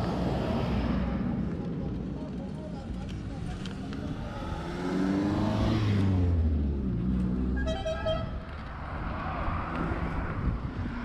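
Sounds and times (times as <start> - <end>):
traffic: 0.0 - 11.0
vehicle passing by: 4.0 - 7.6
short horn toot: 7.6 - 8.4.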